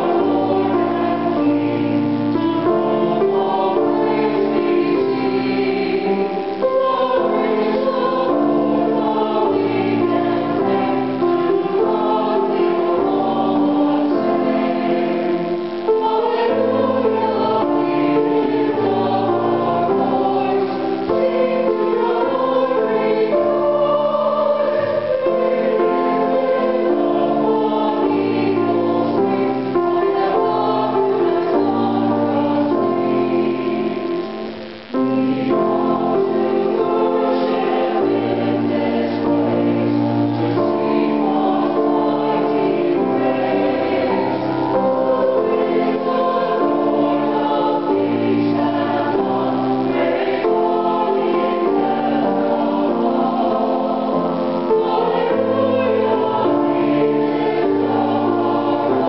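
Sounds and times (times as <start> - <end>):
choir singing a hymn: 0.0 - 59.0.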